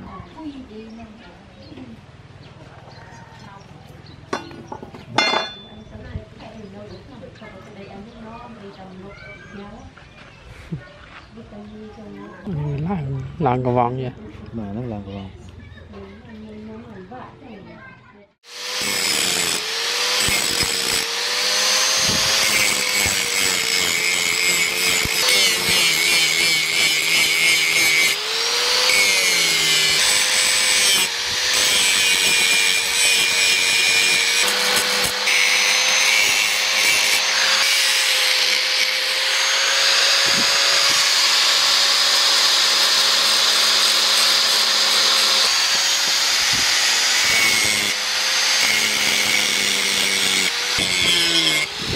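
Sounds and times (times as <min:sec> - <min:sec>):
angle grinder grinding steel: 0:04.4 - 0:05.8, 0:18.4 - 0:51.9.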